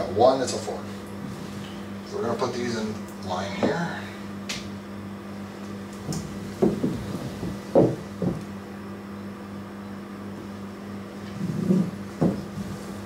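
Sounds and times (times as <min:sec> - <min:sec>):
steady hum: 0:00.0 - 0:13.0
dull knocks on tile floor: 0:06.0 - 0:08.5, 0:11.7 - 0:12.5.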